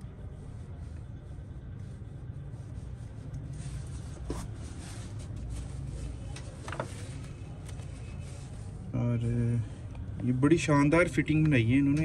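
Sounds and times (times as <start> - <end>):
steady low hum: 0.0 - 12.0
hands rubbing at a workbench: 0.1 - 8.8.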